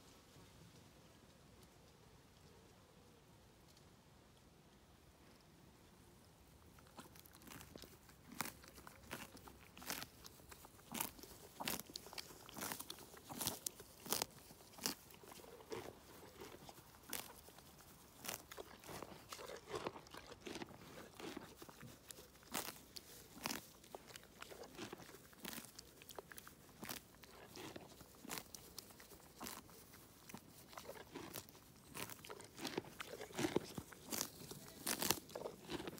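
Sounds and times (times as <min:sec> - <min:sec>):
pony chewing: 0:06.6 - 0:35.9
pony tearing grass: 0:07.0 - 0:35.9.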